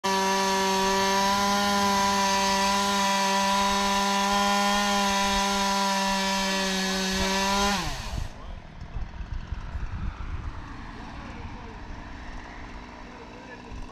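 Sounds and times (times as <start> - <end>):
chainsaw cutting wood: 0.0 - 8.4.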